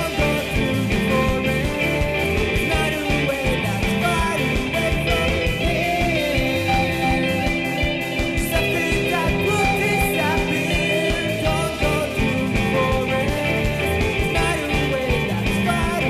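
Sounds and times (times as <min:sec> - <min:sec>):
electric guitars: 0:00.0 - 0:16.0
steady drum beat: 0:00.0 - 0:16.0.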